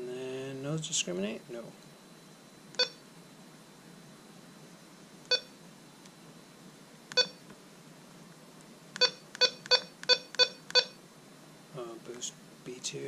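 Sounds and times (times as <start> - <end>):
metal detector short beeps: 2.8 - 3.0, 7.2 - 7.4.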